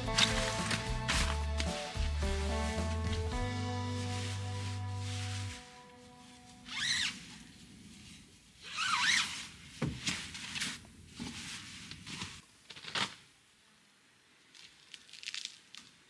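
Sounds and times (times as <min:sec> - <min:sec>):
sleeping bag nylon rustling: 0:00.0 - 0:12.4.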